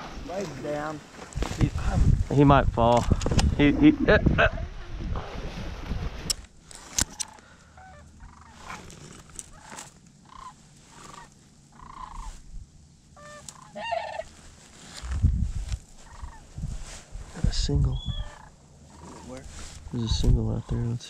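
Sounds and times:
low rumble on microphone: 1.4 - 6.4, 14.3 - 20.8
cranes calling: 7.0 - 15.0, 15.9 - 16.6, 17.9 - 21.0.

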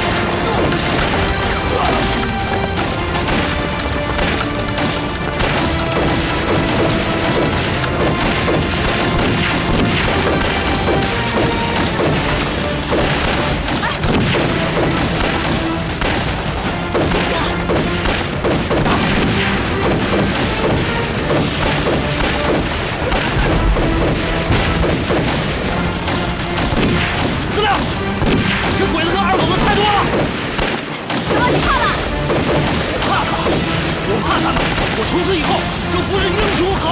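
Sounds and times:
bullet impacts: 0.0 - 28.8
background music score: 0.0 - 36.9
rapid rifle shots: 0.0 - 36.9
heavy explosion boom: 17.7 - 28.8.

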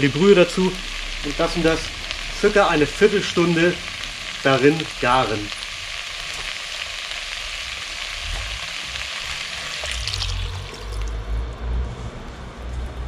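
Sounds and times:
potatoes and onions sizzling: 0.0 - 11.4
liquid pouring from a jug: 9.7 - 11.2.

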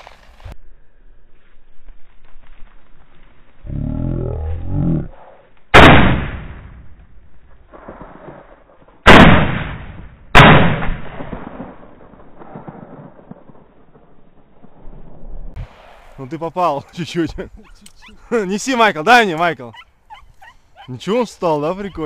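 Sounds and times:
shotgun shots: 5.7 - 6.8, 7.7 - 13.7.

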